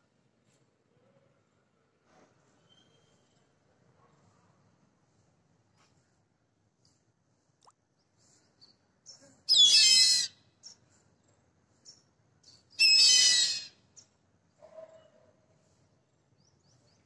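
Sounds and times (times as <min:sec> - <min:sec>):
bird of prey whistled calls: 0:09.5 - 0:10.4, 0:12.7 - 0:13.8.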